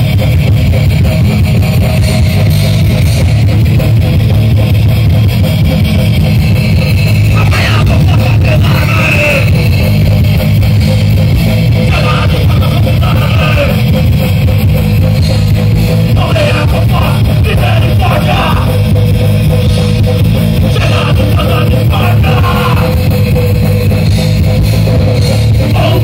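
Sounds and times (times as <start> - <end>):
rock band playing loud: 0.0 - 26.0
person singing: 7.3 - 9.7, 11.8 - 13.9, 16.1 - 18.8, 20.6 - 23.1, 25.5 - 26.0.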